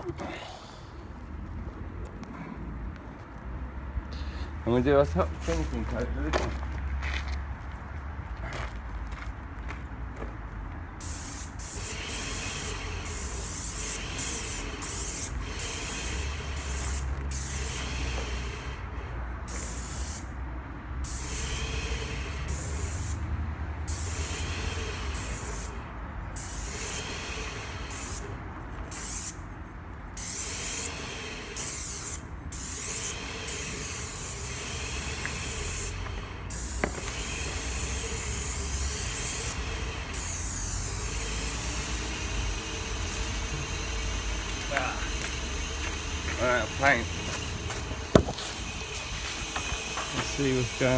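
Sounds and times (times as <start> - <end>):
paint sprayer hissing: 11.0 - 18.9, 19.5 - 20.3, 21.0 - 23.3, 23.9 - 25.8, 26.4 - 29.5, 30.2 - 50.9.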